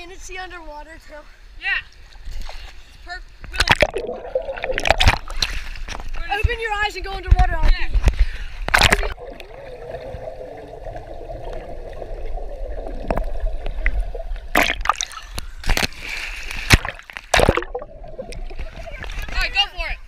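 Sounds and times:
pool water splashing: 3.5s - 6.9s, 8.7s - 20.0s.

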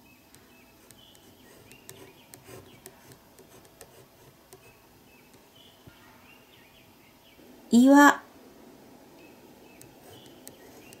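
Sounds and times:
faint bird chirps: 0.0s - 3.1s, 4.6s - 7.5s, 9.1s - 11.0s
pen scratching on paper: 0.8s - 4.8s, 9.9s - 11.0s.

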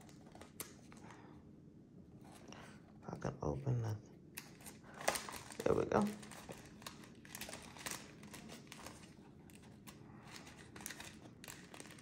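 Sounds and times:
plastic bag crinkling: 4.4s - 12.0s.

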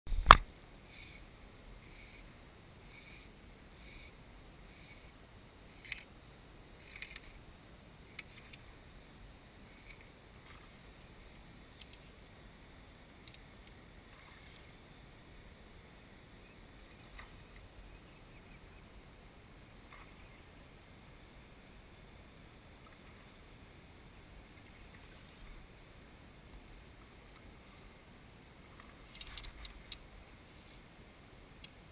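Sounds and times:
sharp clicks: 0.1s - 0.4s, 29.1s - 30.0s
faint soft ticks: 8.1s - 8.7s, 13.2s - 14.7s, 28.7s - 30.8s, 31.6s - 31.8s.

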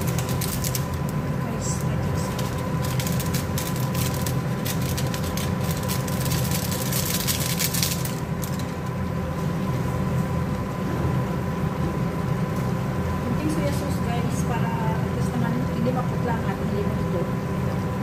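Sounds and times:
food sizzling and crackling in a pot: 0.0s - 9.0s
steady low hum: 0.0s - 18.0s.

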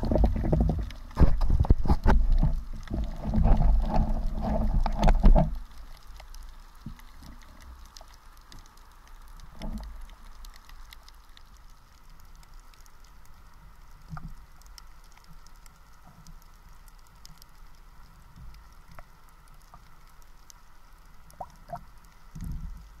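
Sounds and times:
dull thumps underwater: 0.0s - 5.5s
light ticks: 3.9s - 23.0s.

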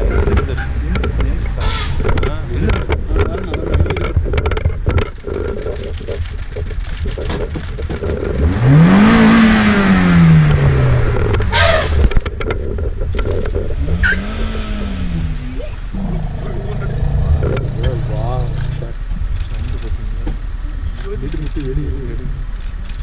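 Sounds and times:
vehicle engine idling: 0.0s - 23.0s.

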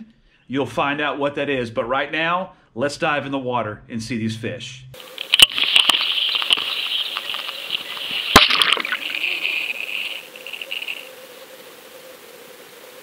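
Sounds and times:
underwater bubbles fizzing hiss: 5.0s - 13.0s.

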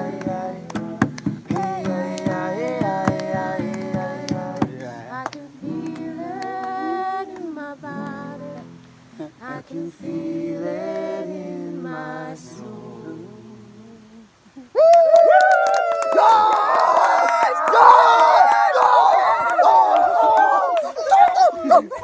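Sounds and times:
handclaps: 0.0s - 8.2s, 14.9s - 21.5s
acoustic guitar: 0.0s - 14.2s
people singing along: 0.0s - 14.3s.

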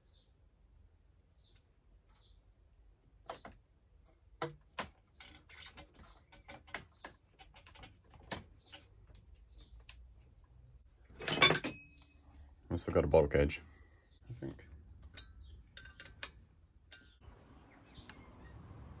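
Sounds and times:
light scraping and rubbing: 5.0s - 9.0s.

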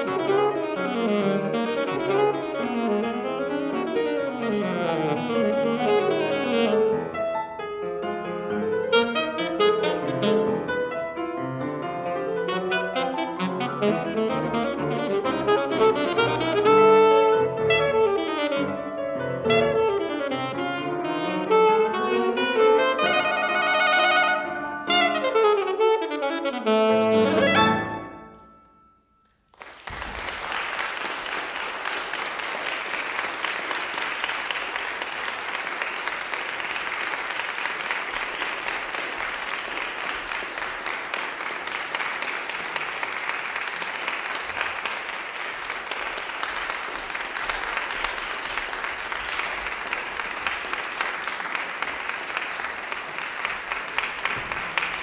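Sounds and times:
alto saxophone: 0.0s - 7.6s, 8.6s - 11.2s, 12.2s - 28.8s
piano: 0.0s - 55.0s
audience applause: 29.5s - 55.0s.

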